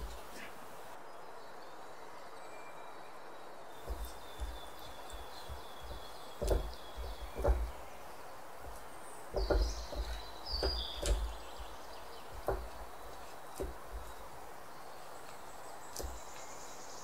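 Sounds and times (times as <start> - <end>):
brush knocking in muffin tin: 3.8 - 7.8, 8.6 - 14.2.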